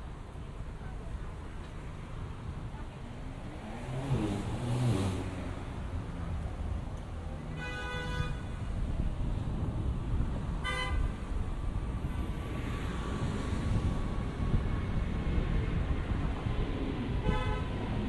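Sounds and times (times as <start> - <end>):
street traffic rumbling: 0.0 - 18.0
car horn honking: 7.5 - 8.6, 10.6 - 11.1, 17.2 - 17.8.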